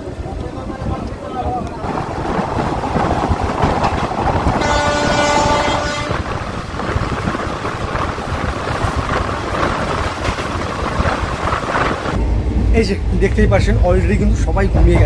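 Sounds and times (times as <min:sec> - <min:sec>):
train rumbling: 0:00.0 - 0:15.0
train horn blast: 0:04.6 - 0:06.4.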